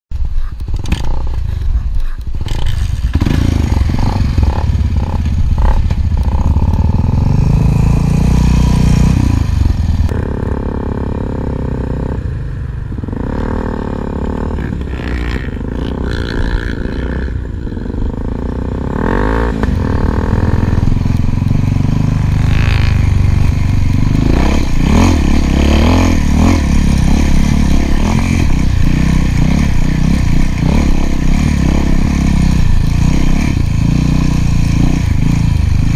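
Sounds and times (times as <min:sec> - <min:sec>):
motorcycle engine revving: 0:00.6 - 0:35.9.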